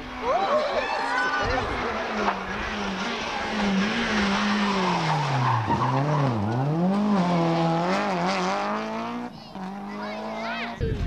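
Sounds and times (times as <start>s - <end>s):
rally car engine revving: 0.0s - 10.9s
tyres skidding: 0.0s - 11.0s.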